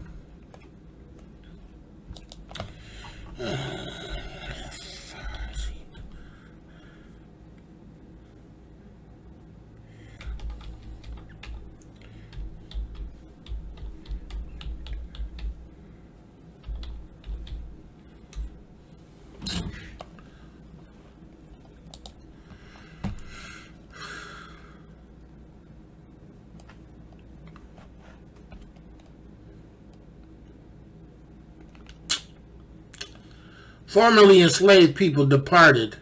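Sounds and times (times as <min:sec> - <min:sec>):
keyboard typing: 0:10.2 - 0:15.7, 0:16.6 - 0:18.6, 0:21.9 - 0:22.2.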